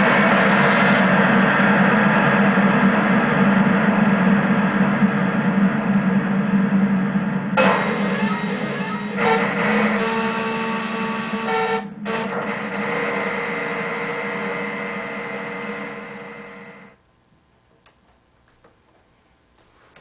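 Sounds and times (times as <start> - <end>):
glitchy synthesizer buzz: 7.6 - 17.0.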